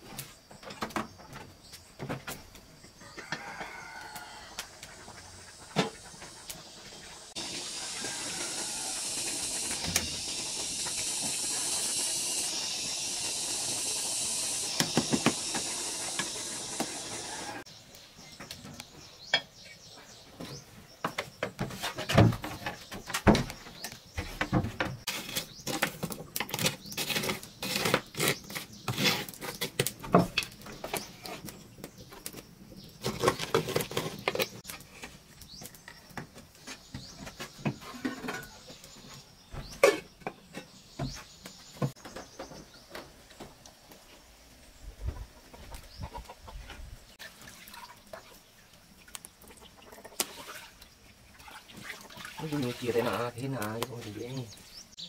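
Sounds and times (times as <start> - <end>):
metal pots and lids clattering: 37.7 - 38.7, 39.8 - 40.8.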